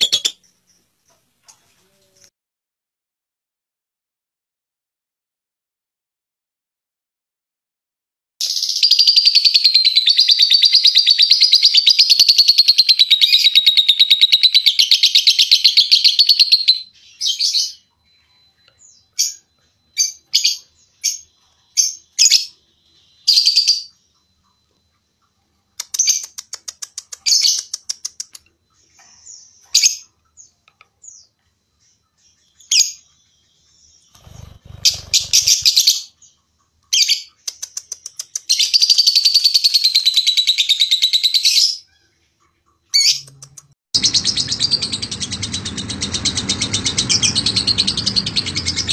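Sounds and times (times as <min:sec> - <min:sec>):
lovebird shrill trilling chatter: 0:34.1 - 0:36.1.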